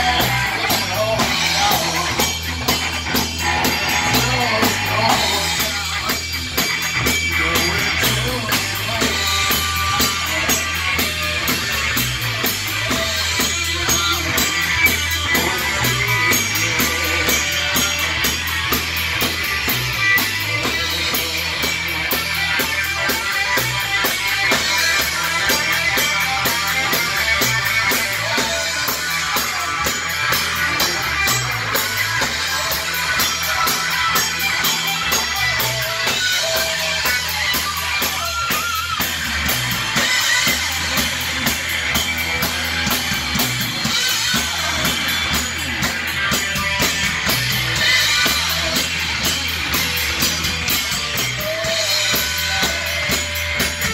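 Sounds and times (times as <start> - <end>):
rock band playing live: 0.0 - 53.9.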